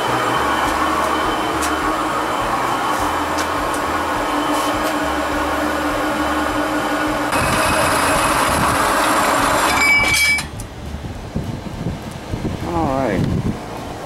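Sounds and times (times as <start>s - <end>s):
band saw cutting steel: 0.0s - 10.6s
brief high metallic ring: 9.7s - 10.6s.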